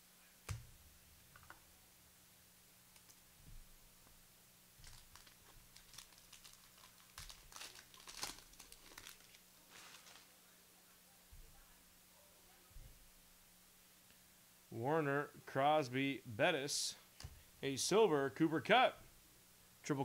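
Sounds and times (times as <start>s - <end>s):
faint steady hum: 0.0s - 20.0s
card wrappers crinkling: 4.8s - 10.4s.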